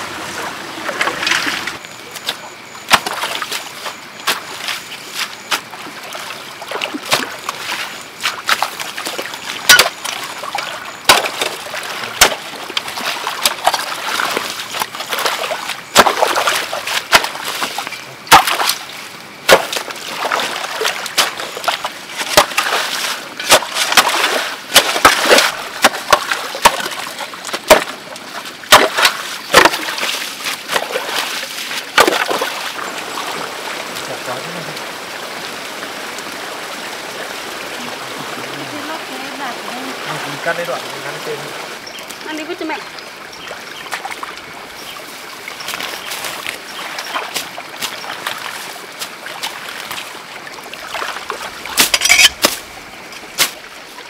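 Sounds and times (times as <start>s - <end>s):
flowing water: 0.0s - 54.0s
shovel scraping and splashing mud: 0.2s - 33.4s, 45.6s - 50.2s, 50.8s - 53.6s.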